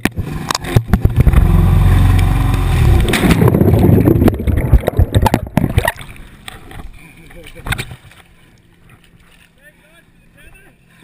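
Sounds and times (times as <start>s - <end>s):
muffled water churning and gurgling: 0.0s - 11.0s
heavy low rumble: 0.4s - 7.0s.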